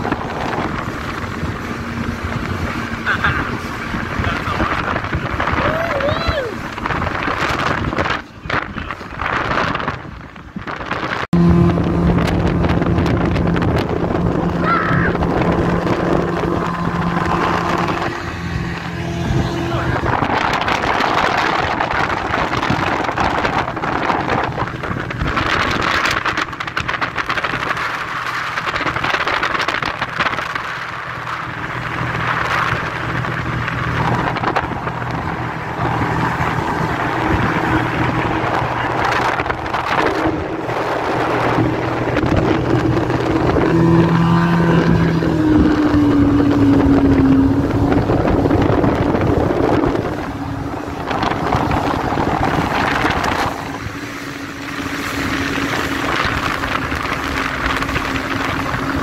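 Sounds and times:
outboard motor running at speed: 0.0 - 59.0
wind buffeting microphone: 0.0 - 59.0.

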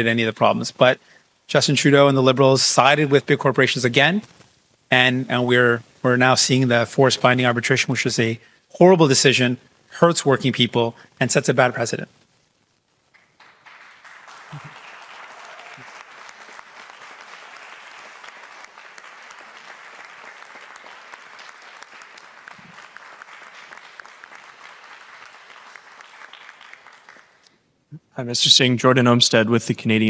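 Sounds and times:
crowd applauding: 13.1 - 27.5.

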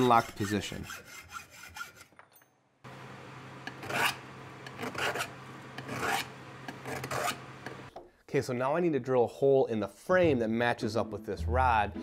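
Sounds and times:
hand file rasping on steel rod: 0.0 - 2.1, 3.7 - 7.4.

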